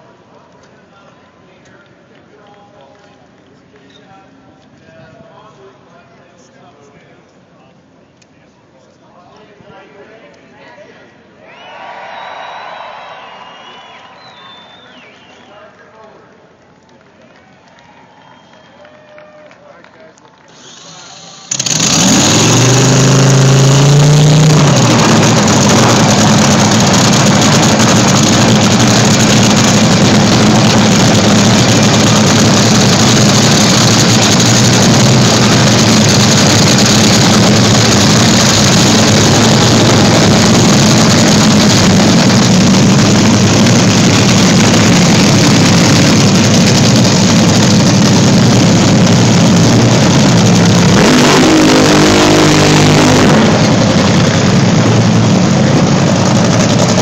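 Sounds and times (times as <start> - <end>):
racing car engine revving: 21.5 - 57.0.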